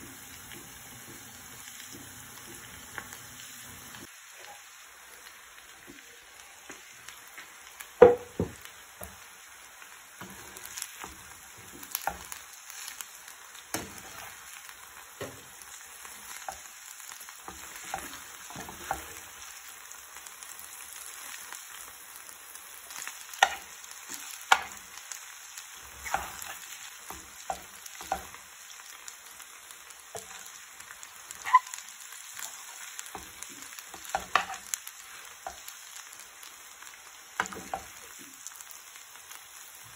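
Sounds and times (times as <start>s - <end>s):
faint sizzle: 0.0s - 39.9s
spoon knocking pan: 8.0s - 9.2s, 23.4s - 23.7s, 24.4s - 24.8s, 26.0s - 28.4s, 33.0s - 34.7s, 37.4s - 38.0s.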